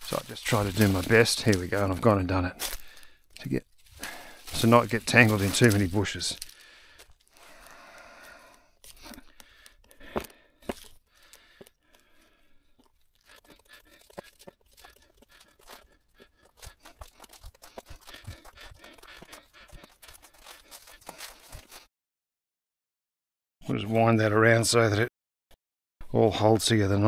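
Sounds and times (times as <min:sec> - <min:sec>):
wire rustling and crackling: 0:00.0 - 0:09.8, 0:12.8 - 0:21.9.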